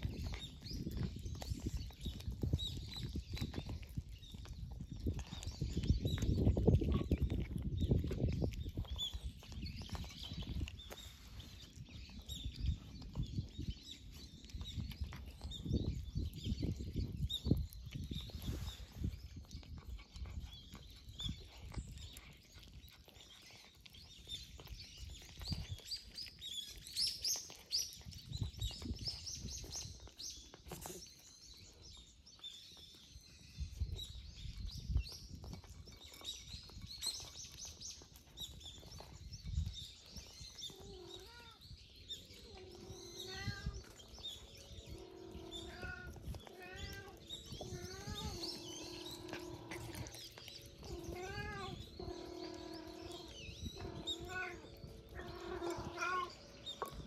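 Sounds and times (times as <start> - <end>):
small birds chirping: 0.0 - 57.0
cat meowing: 45.2 - 50.1, 50.8 - 56.4.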